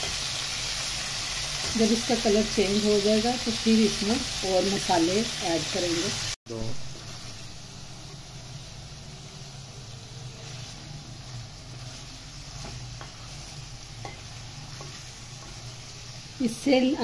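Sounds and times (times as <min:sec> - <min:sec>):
chicken sizzling in oil: 0:00.0 - 0:17.0.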